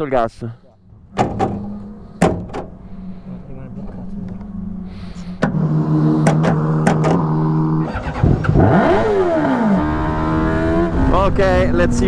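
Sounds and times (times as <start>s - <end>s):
race car engine revving: 1.0s - 12.0s.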